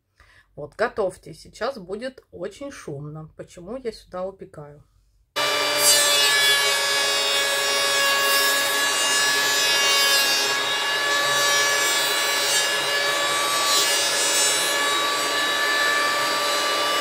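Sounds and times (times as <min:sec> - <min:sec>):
power tool cutting wood: 0:05.4 - 0:17.0.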